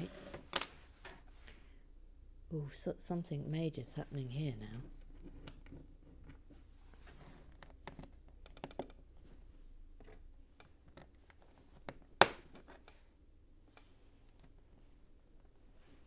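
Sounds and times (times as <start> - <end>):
sharp plastic snap: 12.2 - 13.0.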